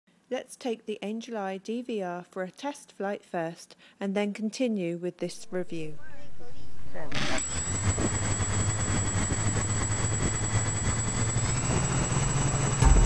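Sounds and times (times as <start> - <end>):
drone motors and propellers humming: 7.1 - 13.0.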